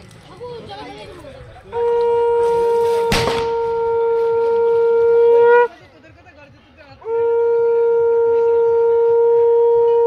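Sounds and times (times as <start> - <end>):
conch shell blasts: 1.7 - 5.7.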